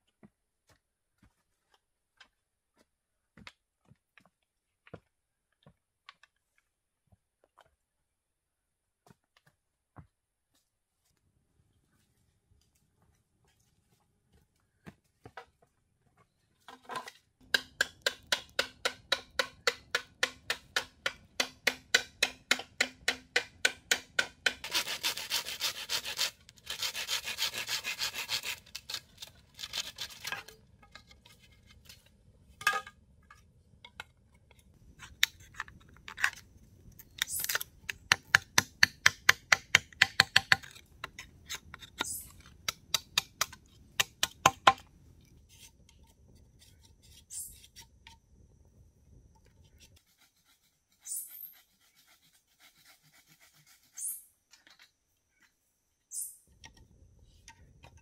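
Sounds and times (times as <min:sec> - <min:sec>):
blade rasping bamboo pole: 0:21.4 - 0:30.6, 0:49.8 - 0:54.2.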